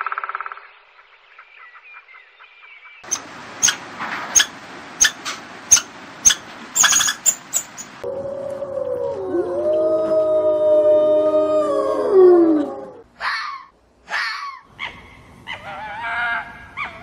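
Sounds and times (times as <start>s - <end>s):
squirrel chirping calls: 3.0s - 8.0s
woodpecker drumming on wood: 3.0s - 8.0s.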